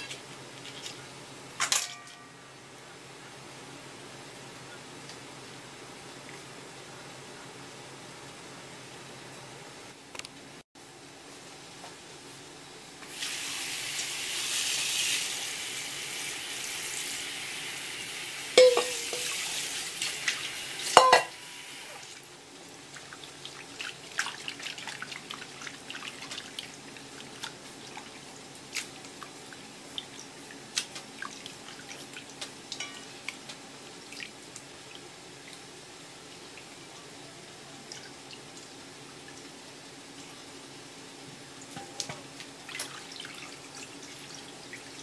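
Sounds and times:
tap water running into metal bowl: 18.6 - 21.4.

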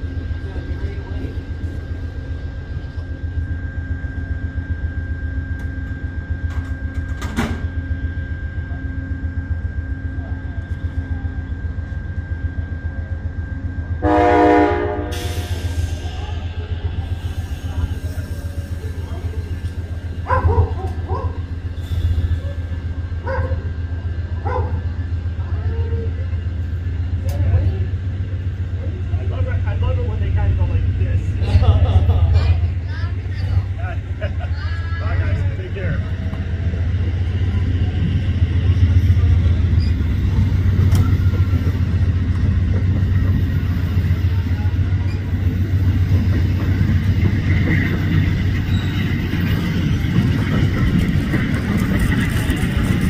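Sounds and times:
freight train rumbling: 0.0 - 53.0
dog barking: 20.2 - 21.4, 23.2 - 23.7, 24.4 - 24.8.

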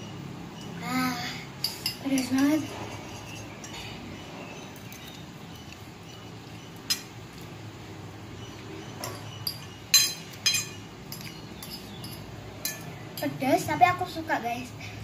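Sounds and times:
fork clinking against glass bowl: 9.0 - 13.3.

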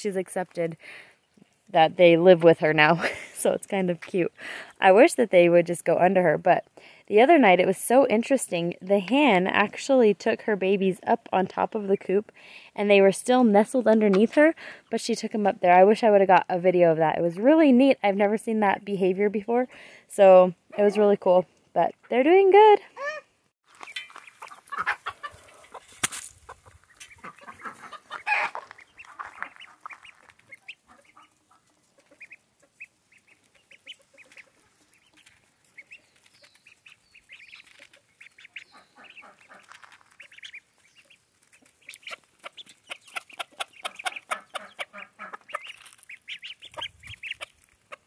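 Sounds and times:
hen clucking: 21.8 - 48.0
chicks peeping: 23.8 - 48.0.

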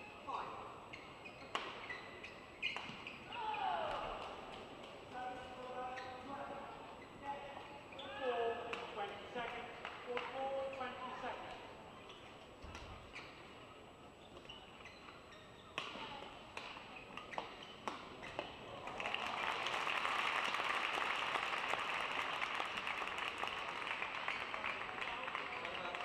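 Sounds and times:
racket hitting shuttlecock: 1.5 - 1.9, 15.8 - 18.5
crowd applauding: 18.8 - 26.0.

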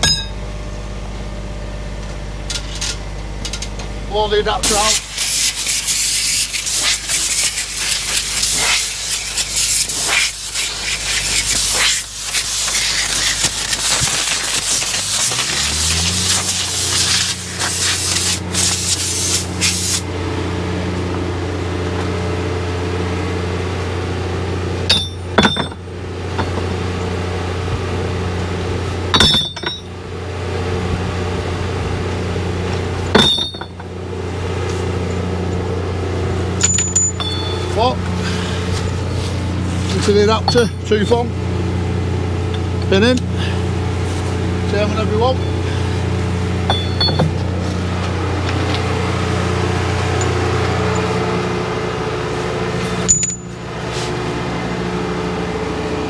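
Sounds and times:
ringing metal clanks: 0.0 - 0.4, 24.9 - 25.9, 29.1 - 29.9, 33.1 - 33.8, 36.6 - 37.8, 40.4 - 41.2, 46.6 - 47.4, 53.0 - 53.7
engine humming: 0.0 - 56.0
metal tools scraping and knocking: 29.2 - 29.9, 33.2 - 33.8, 40.4 - 40.9, 46.7 - 47.4.

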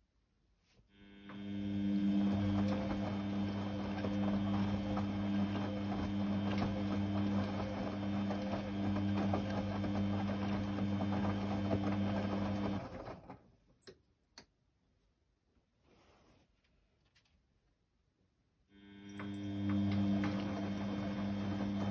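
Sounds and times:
washing machine motor humming: 0.9 - 13.5, 18.7 - 21.9.

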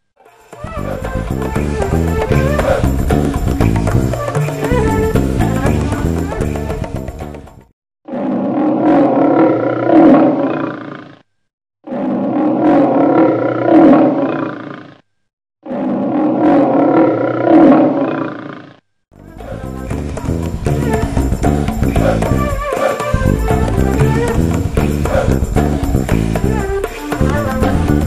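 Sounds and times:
background music: 0.3 - 7.6, 19.2 - 28.0
lion roar: 0.7 - 4.2, 8.1 - 11.2, 11.9 - 15.0, 15.6 - 18.8, 19.4 - 28.0.

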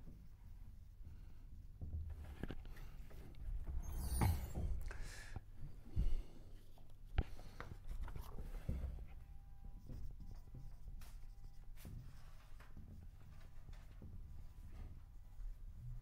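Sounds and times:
marker writing on whiteboard: 7.2 - 14.4.

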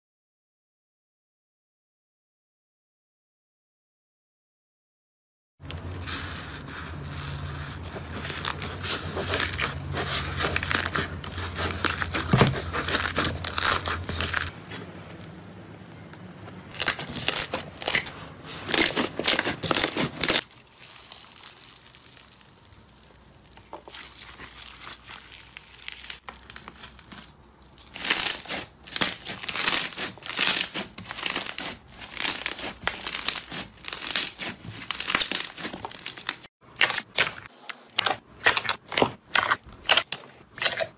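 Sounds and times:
foam beads crackling: 5.7 - 14.6, 16.7 - 36.5
slime crackling and popping: 5.8 - 15.4, 18.7 - 37.4.

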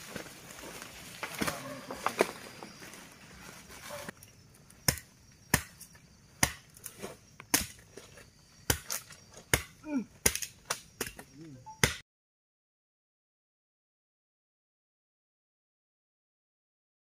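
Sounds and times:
brush rustling and crackling: 0.0 - 4.3
machete chopping grass: 4.8 - 7.9, 8.6 - 12.0.

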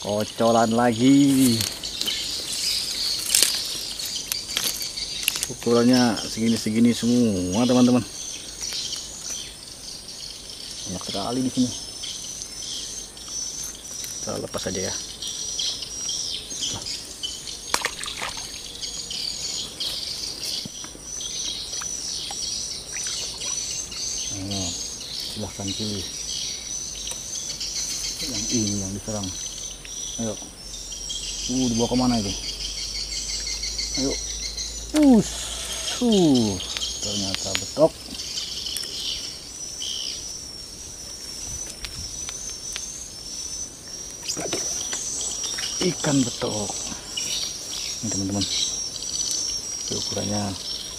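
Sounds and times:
insects and birds chirping: 0.0 - 50.9.

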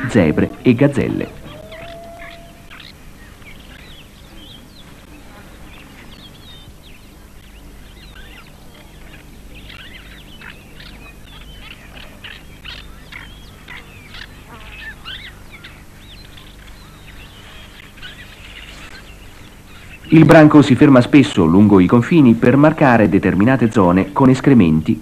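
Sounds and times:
birds chirping in chorus: 0.0 - 25.0
steady low hum: 0.0 - 25.0.

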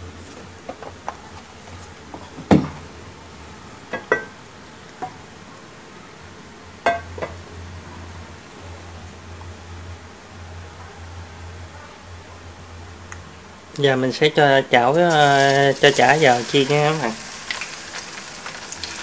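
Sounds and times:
low steady hum: 0.0 - 19.0
kitchenware clinking and knocking: 3.9 - 4.3.

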